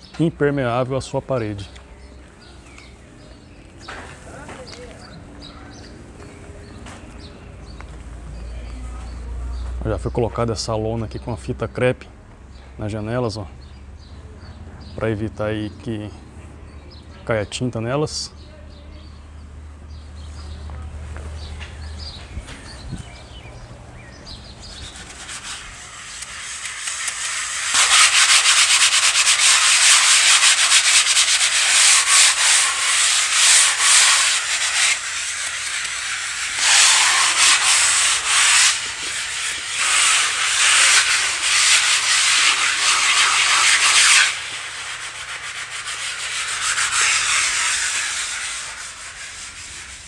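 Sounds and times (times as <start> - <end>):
sandpaper rubbing on wall: 24.4 - 50.0.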